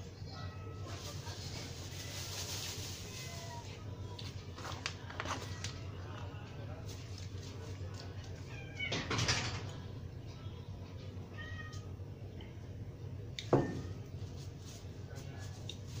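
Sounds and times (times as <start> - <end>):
steady low hum: 9.6 - 16.0.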